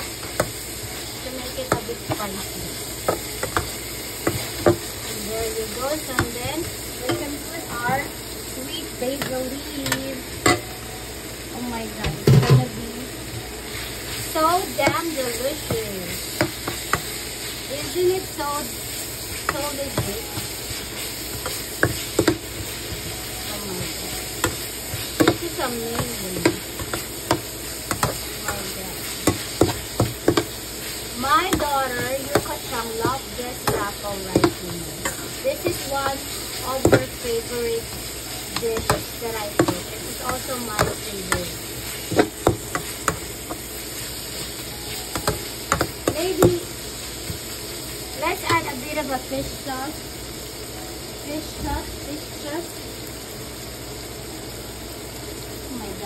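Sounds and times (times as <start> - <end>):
spatula scraping and knocking pan: 0.0 - 8.1, 14.0 - 47.6
food sizzling in a frying pan: 0.0 - 56.0.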